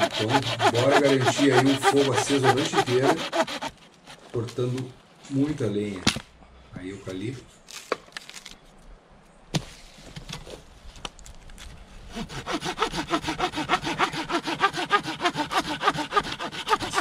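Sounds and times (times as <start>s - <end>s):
hand saw cutting branch: 0.0s - 4.2s, 12.1s - 17.0s.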